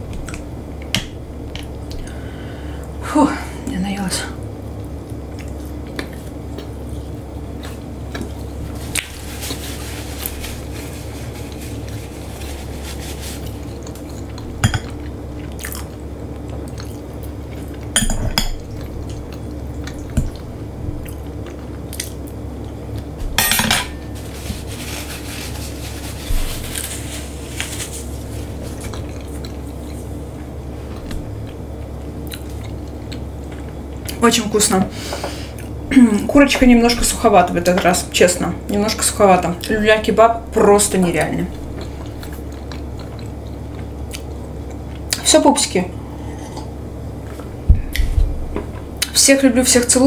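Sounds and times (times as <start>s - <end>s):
low background hum: 0.0s - 50.0s
chewing and biting food: 13.4s - 17.9s, 30.9s - 34.2s, 41.7s - 45.2s
cutlery and dishes clinking: 23.4s - 24.0s.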